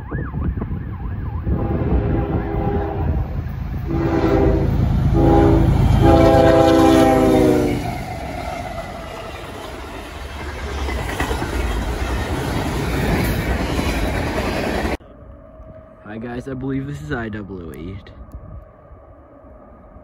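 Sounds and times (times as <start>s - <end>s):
low rumble of freight train: 0.4s - 20.0s
locomotive horn blasts: 1.5s - 8.0s.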